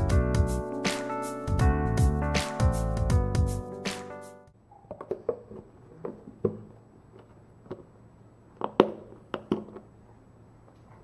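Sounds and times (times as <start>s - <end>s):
hands tapping and knocking container: 8.6s - 9.9s.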